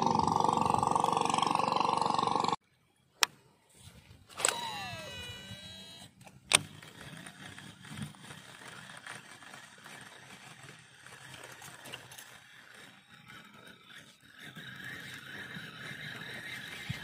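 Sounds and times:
fishing reel brake whine: 0:00.0 - 0:02.6, 0:04.4 - 0:17.0
reel winding whir: 0:00.0 - 0:02.6, 0:04.3 - 0:17.0.

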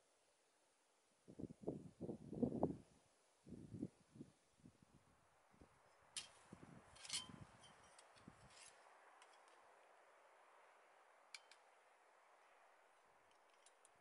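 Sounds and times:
faint steady hiss: 0:00.0 - 0:14.0.

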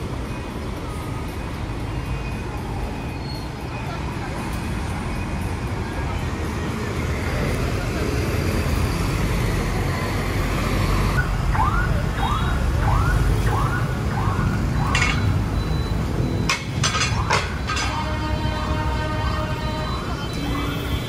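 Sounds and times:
motorbikes and cars running: 0:00.0 - 0:21.0
vehicle siren wailing: 0:11.1 - 0:21.0.

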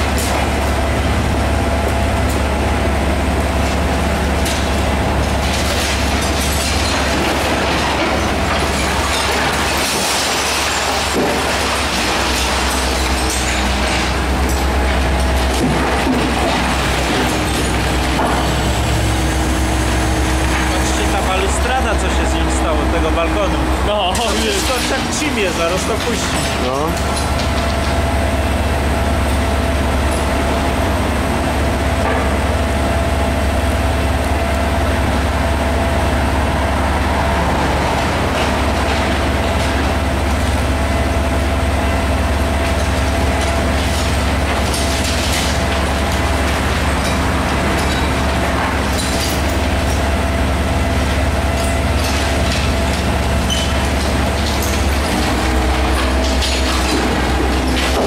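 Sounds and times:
diesel engine running: 0:00.0 - 0:58.0
rubble knocking and clattering: 0:03.6 - 0:28.4, 0:37.9 - 0:58.0.

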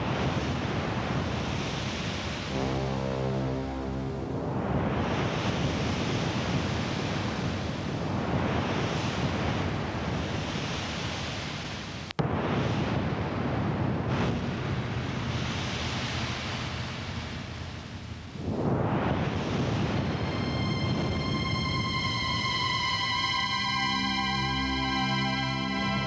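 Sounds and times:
rushing underwater noise: 0:02.0 - 0:07.6.

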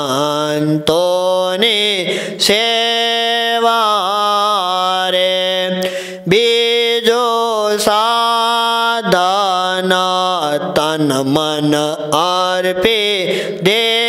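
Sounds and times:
man singing devotional song: 0:00.0 - 0:14.0.

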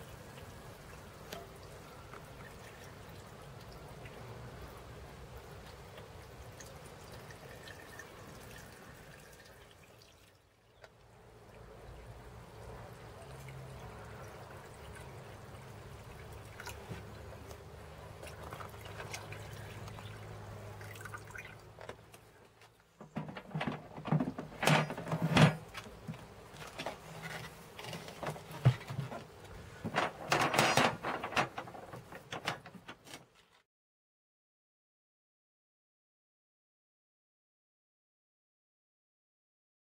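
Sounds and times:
liquid pouring into tank: 0:00.3 - 0:10.4, 0:13.1 - 0:21.9
plastic knocks and clunks: 0:23.0 - 0:33.2.

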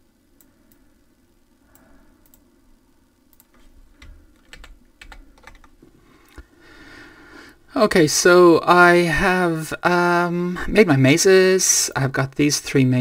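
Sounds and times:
keyboard typing: 0:03.3 - 0:05.8.

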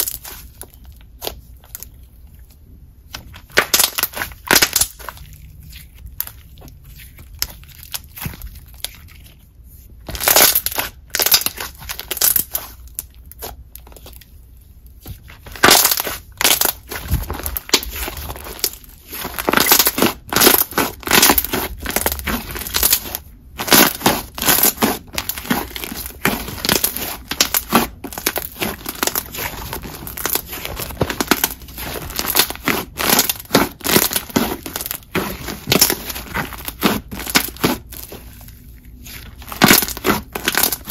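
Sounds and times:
slime squishing with wet pops: 0:00.0 - 0:40.9.

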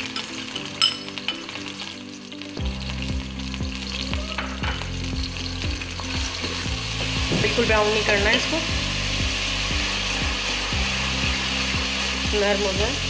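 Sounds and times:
onions sizzling in hot oil: 0:00.0 - 0:13.0
backing music with steady beat: 0:02.6 - 0:07.8, 0:08.7 - 0:13.0.

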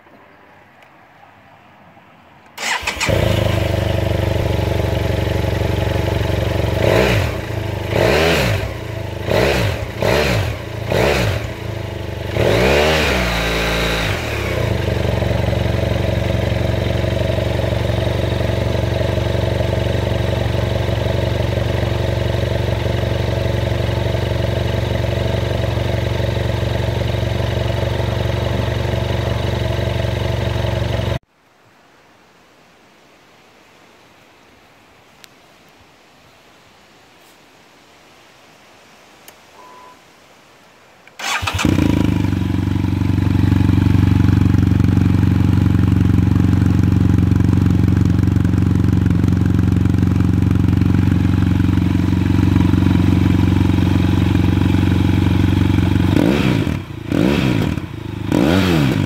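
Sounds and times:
motorcycle engine idling and revving: 0:02.6 - 0:31.2, 0:41.2 - 0:59.0.

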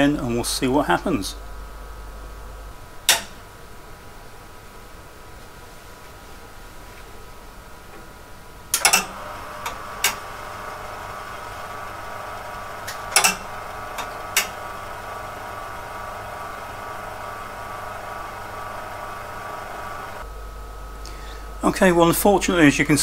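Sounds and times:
steady hum: 0:00.0 - 0:23.0
floppy drive clunking and clicking: 0:08.7 - 0:20.2.

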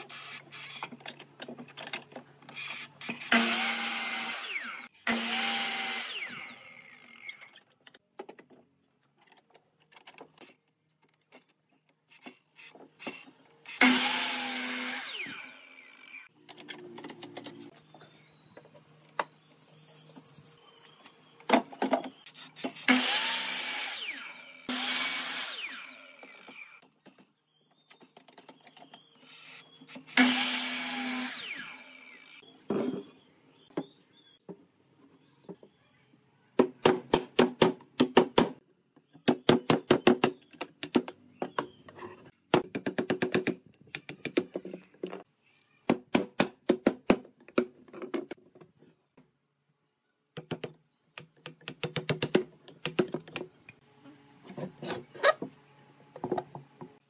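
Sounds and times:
miter saw cutting wood: 0:03.2 - 0:07.4, 0:13.7 - 0:16.3, 0:22.8 - 0:26.8, 0:30.1 - 0:32.4.

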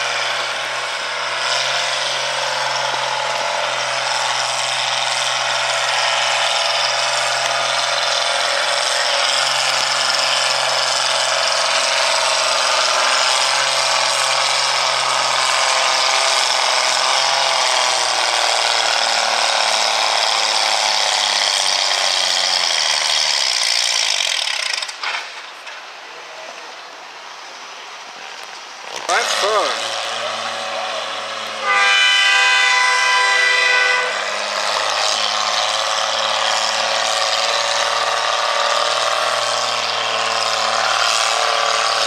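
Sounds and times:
tractor engine at full throttle: 0:00.0 - 0:42.0
loud rattling clatter: 0:01.2 - 0:25.8, 0:34.3 - 0:42.0.

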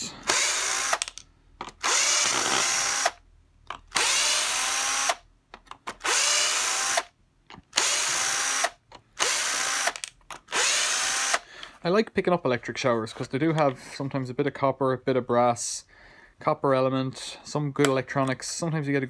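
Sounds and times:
cordless drill motor whine: 0:00.2 - 0:01.0, 0:01.8 - 0:03.2, 0:04.0 - 0:05.2, 0:06.0 - 0:07.0, 0:07.8 - 0:11.4
drill bit clicking on screw heads: 0:00.2 - 0:11.7.

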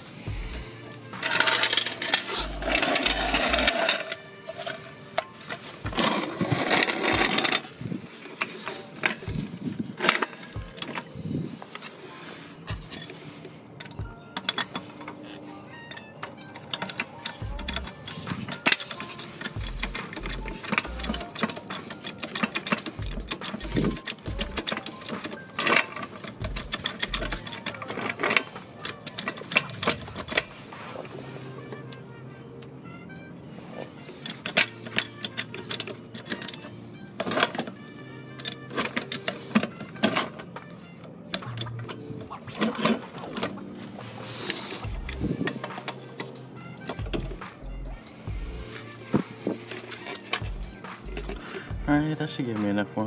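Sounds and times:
dull low thumps: 0:00.3 - 0:00.7, 0:44.9 - 0:45.5, 0:48.3 - 0:48.8, 0:50.4 - 0:52.1
floor jack rattling and clanking: 0:05.6 - 0:07.8, 0:16.7 - 0:30.6, 0:46.9 - 0:47.7.

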